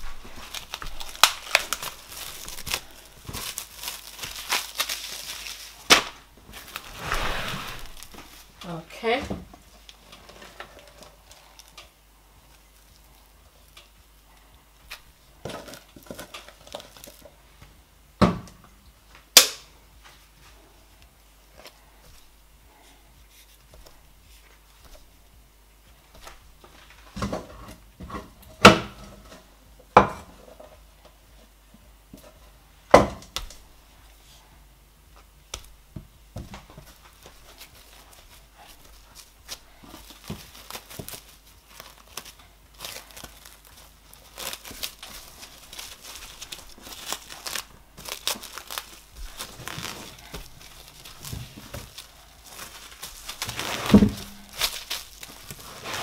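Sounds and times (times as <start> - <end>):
cling film crinkling: 0.0 - 8.8, 36.7 - 56.0.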